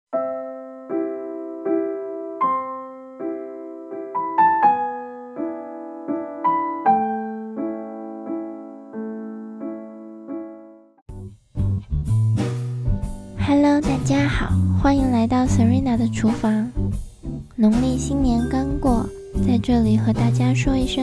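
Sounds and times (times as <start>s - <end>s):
soft piano chords: 0.1s - 11.0s, 17.3s - 21.0s.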